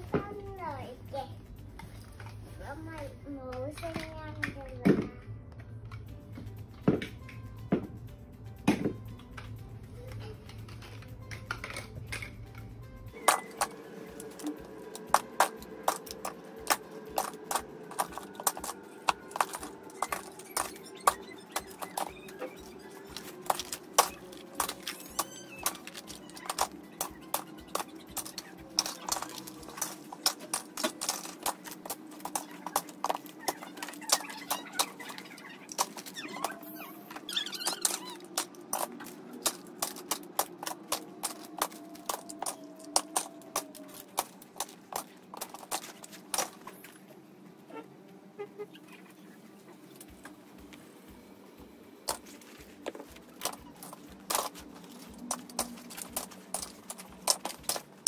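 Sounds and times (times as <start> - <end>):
plastic toys clattering into a bin: 10.2 - 46.9, 52.1 - 58.0.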